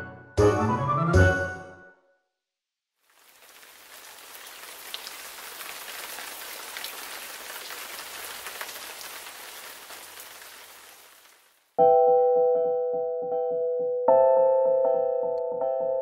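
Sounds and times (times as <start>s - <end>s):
rain pattering: 3.0s - 11.8s.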